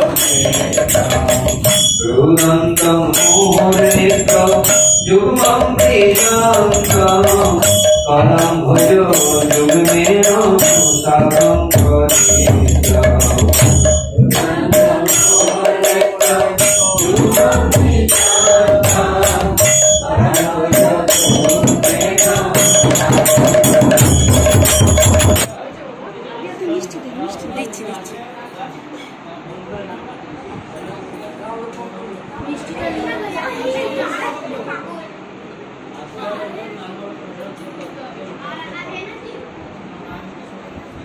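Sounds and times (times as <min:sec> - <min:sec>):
drum beating fast rhythm: 0:00.0 - 0:25.6
jangling hand percussion: 0:00.0 - 0:25.6
people singing devotional music: 0:00.0 - 0:25.6.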